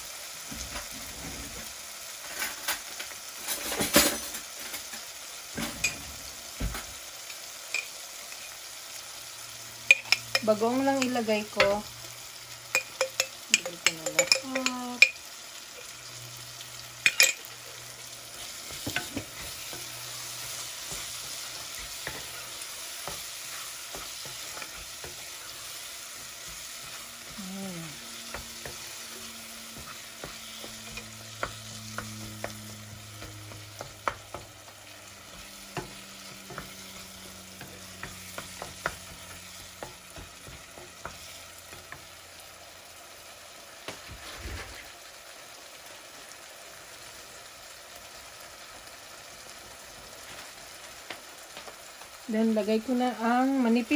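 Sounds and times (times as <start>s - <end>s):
food sizzling in a pot: 0.0s - 53.9s
wooden spoon stirring: 12.7s - 15.2s, 18.3s - 42.1s.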